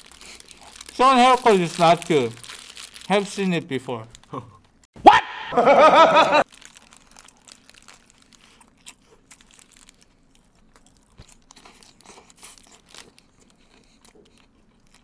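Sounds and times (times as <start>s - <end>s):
paper wrappers crinkling: 0.0s - 4.4s, 6.4s - 15.0s
chewing food: 6.6s - 15.0s.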